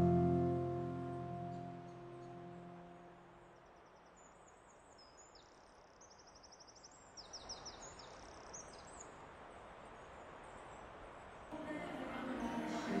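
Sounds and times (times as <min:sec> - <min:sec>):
faint outdoor hiss: 0:00.0 - 0:13.0
small birds chirping: 0:03.6 - 0:11.5.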